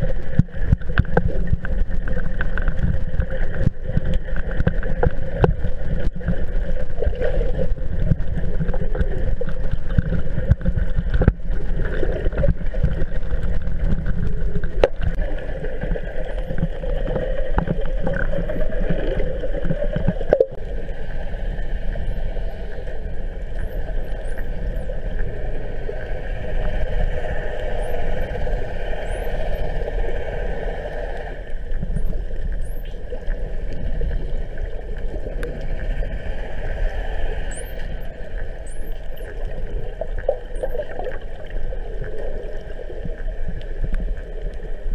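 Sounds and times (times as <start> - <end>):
boat engines droning underwater: 0.0 - 44.9
muffled underwater noise: 0.0 - 44.9
dolphin whistles: 29.0 - 29.6, 37.5 - 38.0, 38.6 - 39.3.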